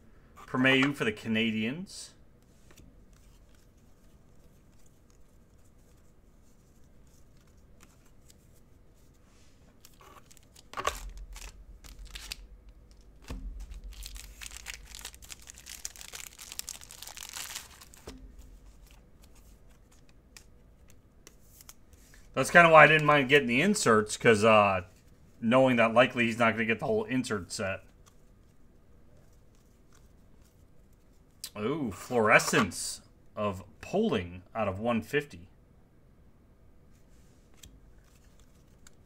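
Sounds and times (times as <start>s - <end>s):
wrapper tearing and crinkling: 9.8s - 19.4s.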